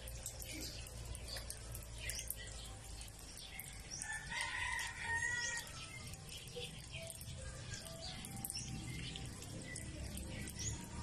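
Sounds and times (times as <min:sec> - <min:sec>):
small birds chirping: 0:00.0 - 0:11.0
rooster crowing: 0:04.0 - 0:05.8.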